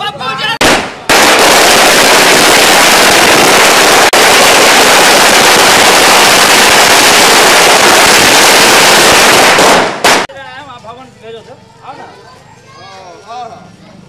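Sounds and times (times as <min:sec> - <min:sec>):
firecrackers crackling: 0:00.6 - 0:10.4.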